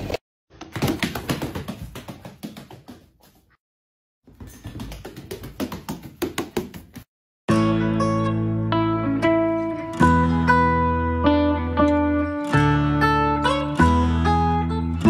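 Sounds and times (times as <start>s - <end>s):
tapping and clicking on hardwood floor: 0.6s - 3.4s, 4.4s - 7.1s.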